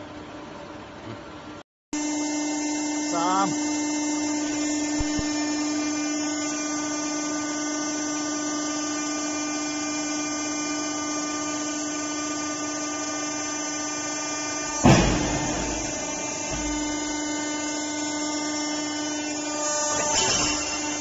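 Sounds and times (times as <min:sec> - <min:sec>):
hydraulic press pump hum: 0:02.0 - 0:21.0.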